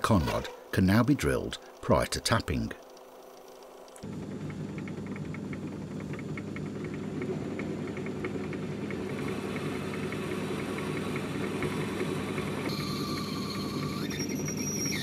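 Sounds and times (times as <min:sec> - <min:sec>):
light rapid ticking: 0:01.6 - 0:07.3
lathe humming: 0:02.9 - 0:15.0.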